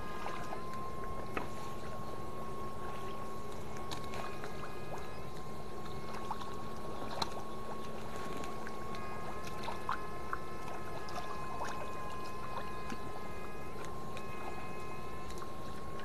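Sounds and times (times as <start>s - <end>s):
electric fish-shocker whine: 0.0s - 16.0s.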